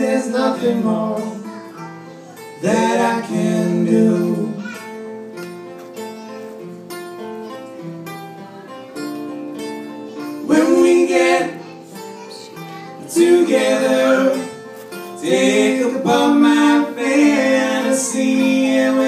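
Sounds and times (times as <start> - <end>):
acoustic guitar strumming: 0.0 - 19.0
person singing: 2.6 - 4.8, 10.1 - 19.0.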